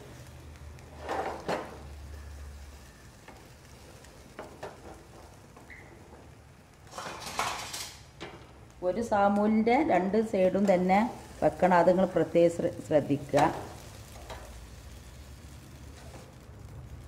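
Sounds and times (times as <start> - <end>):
food sizzling in a pan: 0.0 - 17.0.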